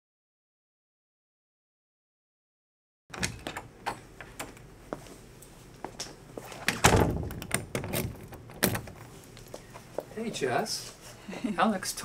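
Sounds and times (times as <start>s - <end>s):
door clicks and knocks: 3.1s - 4.6s, 6.7s - 9.0s
heavy door thud: 6.7s - 9.0s.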